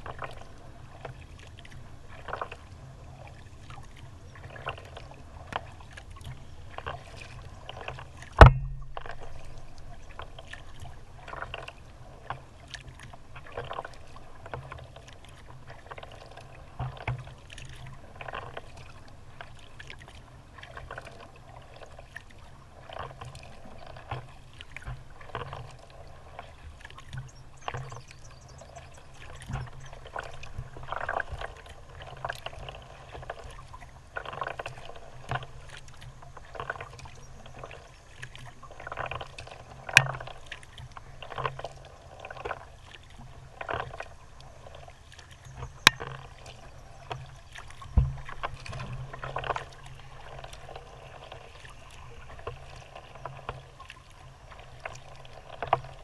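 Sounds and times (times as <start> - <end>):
kayak paddle dipping into water: 0.0 - 56.0
water splashing and dripping: 0.0 - 56.0
sharp knock: 8.4 - 8.9.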